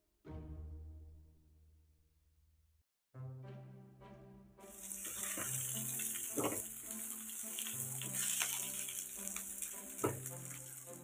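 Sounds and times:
soft background music: 3.2 - 11.0
eggs sizzling in a pan: 4.7 - 11.0
spatula scraping a pan: 4.9 - 10.8.

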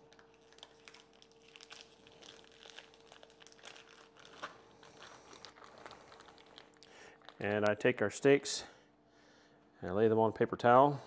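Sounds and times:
plastic bags crinkling: 0.0 - 7.8
faint hum: 0.0 - 11.0.

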